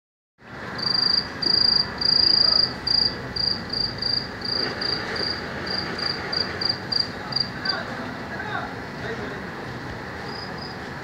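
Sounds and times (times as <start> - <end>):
steady background noise: 0.4 - 11.0
cricket chirping: 0.8 - 7.8, 10.3 - 10.8.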